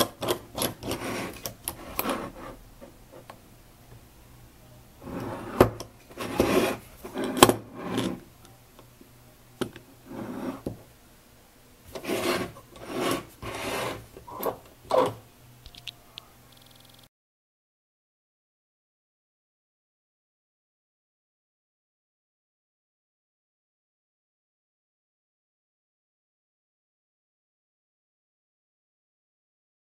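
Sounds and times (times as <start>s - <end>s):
metal engine scraping on table: 0.4s - 2.6s, 5.0s - 8.3s, 10.0s - 10.6s, 11.9s - 15.2s.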